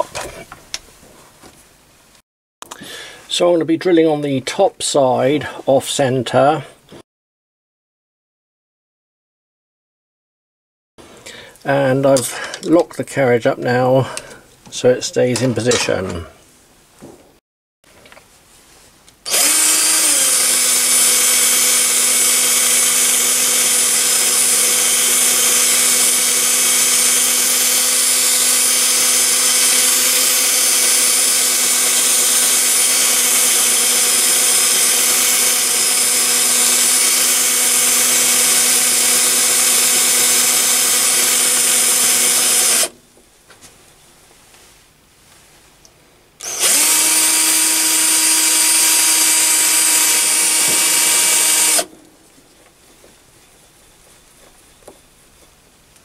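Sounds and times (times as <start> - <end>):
drill motor whine: 19.3 - 42.9, 46.4 - 51.9.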